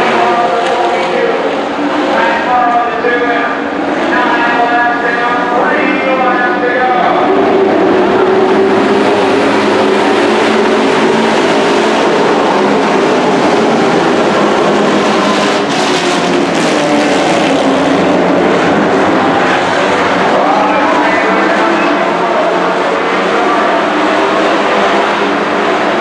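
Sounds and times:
race truck engines droning: 0:00.0 - 0:26.0.

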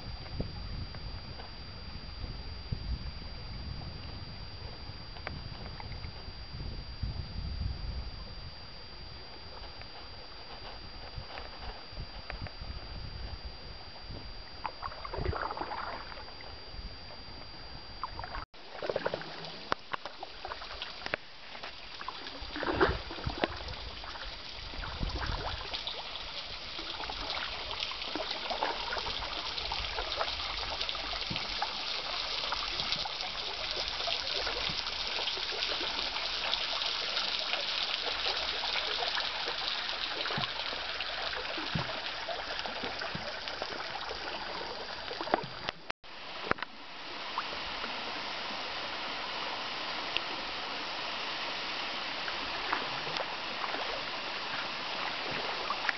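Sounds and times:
river water lapping against canoe: 0:14.6 - 0:16.4, 0:18.0 - 0:48.0, 0:52.2 - 0:55.9.

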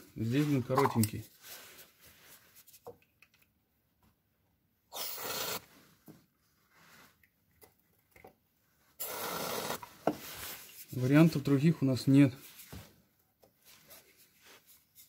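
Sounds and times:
aerosol spray hissing: 0:09.0 - 0:09.8.

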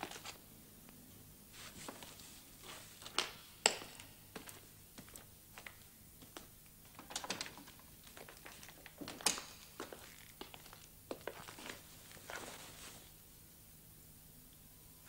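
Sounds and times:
faint rustling: 0:01.5 - 0:03.2, 0:09.8 - 0:13.2.

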